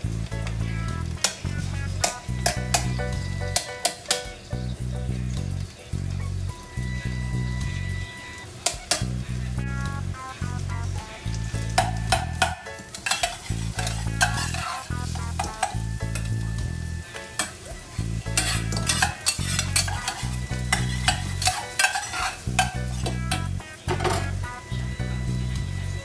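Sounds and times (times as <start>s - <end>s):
food sizzling: 0.0s - 26.0s
metal spoon scraping a pan: 1.2s - 4.4s, 8.6s - 9.2s, 11.6s - 16.4s, 17.3s - 24.4s.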